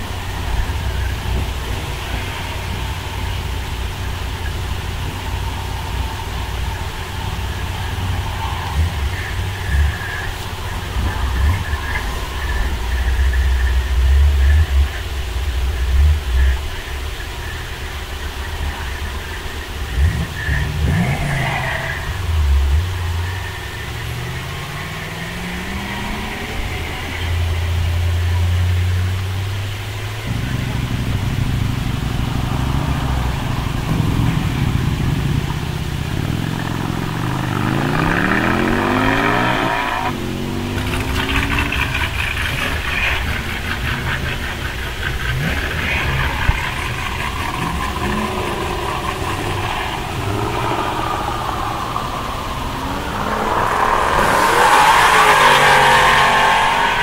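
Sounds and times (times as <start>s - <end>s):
car engines revving: 0.0s - 57.0s.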